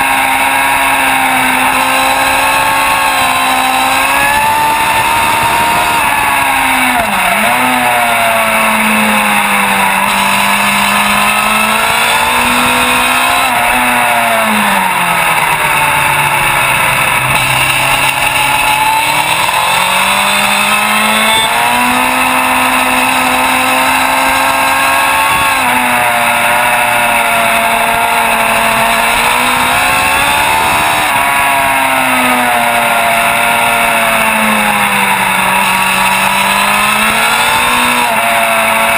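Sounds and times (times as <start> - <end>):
motorcycle engine running hard: 0.0 - 38.9.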